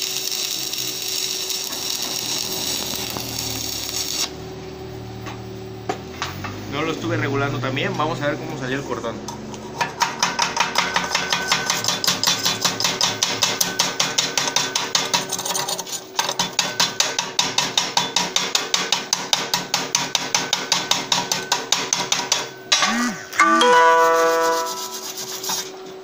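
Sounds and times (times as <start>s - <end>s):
chipping hammer tapping on steel: 9.5s - 15.1s, 16.4s - 23.1s.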